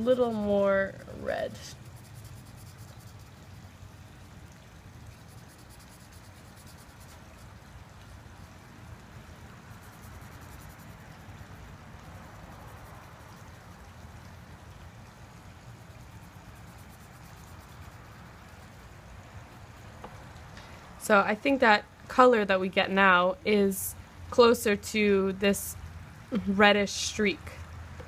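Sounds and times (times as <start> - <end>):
marker scratching on paper: 1.5 - 3.4, 5.1 - 7.5.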